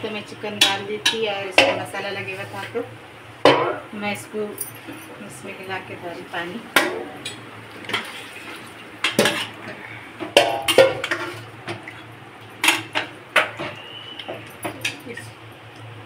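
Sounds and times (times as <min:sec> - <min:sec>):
low steady hum: 0:00.0 - 0:16.0
metal spoon clanking on pots: 0:00.5 - 0:01.9, 0:09.0 - 0:11.4.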